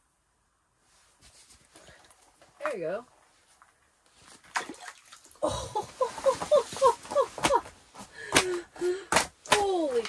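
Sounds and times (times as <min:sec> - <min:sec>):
water splashing: 0:04.4 - 0:05.4
sharp slaps or knocks: 0:08.3 - 0:09.8.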